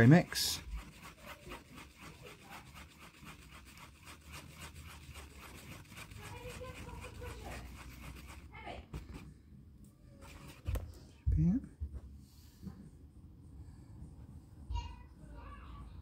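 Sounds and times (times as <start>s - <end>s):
stick stirring epoxy on cardboard: 0.0s - 9.3s, 10.2s - 10.8s.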